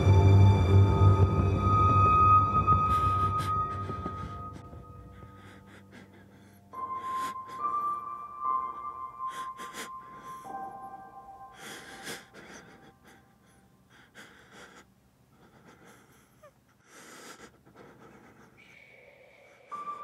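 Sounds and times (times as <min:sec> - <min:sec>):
ambient music tone: 0:00.0 - 0:12.0
man breathing heavily: 0:02.6 - 0:20.0.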